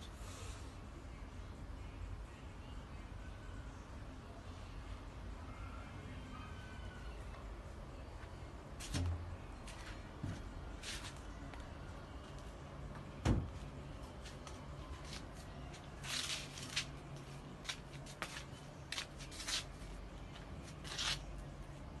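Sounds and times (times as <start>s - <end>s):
rustles and scrapes: 10.8s - 11.2s, 14.2s - 21.3s.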